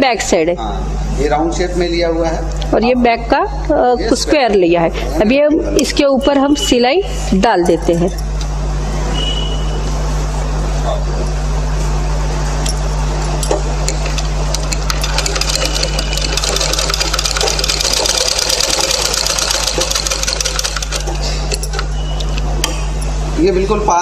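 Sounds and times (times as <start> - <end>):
sewing machine stitching: 14.5 - 21.3.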